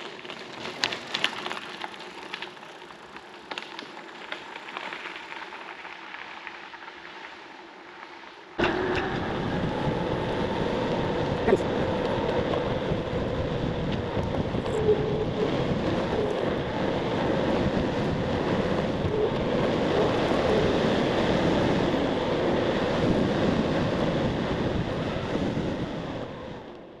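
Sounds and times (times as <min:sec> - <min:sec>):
bicycle tyre rumble: 0:00.0 - 0:27.0
wind buffeting microphone: 0:08.6 - 0:27.0.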